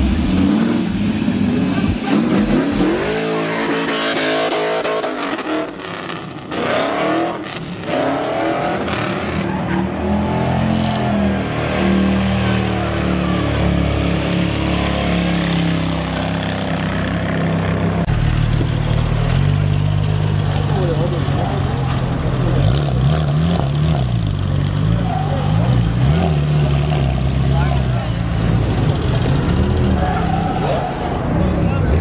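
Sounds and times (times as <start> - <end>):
car engine revving: 0.0 - 32.0.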